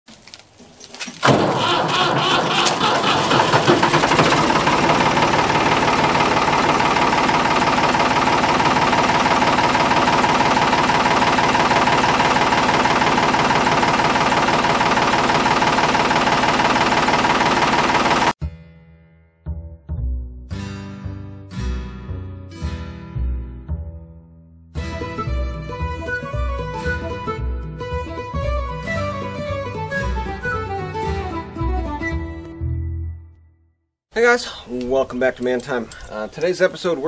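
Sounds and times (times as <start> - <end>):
diesel engine starting: 1.2 - 18.4.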